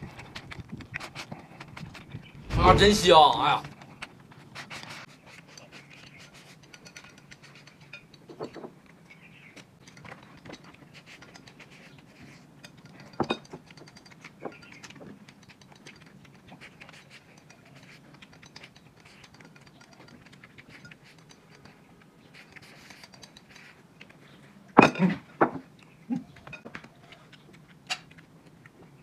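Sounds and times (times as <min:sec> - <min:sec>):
chewing: 0:00.0 - 0:02.4, 0:03.7 - 0:24.8, 0:25.7 - 0:29.0
chopsticks clicking on ceramic plates: 0:06.6 - 0:21.8.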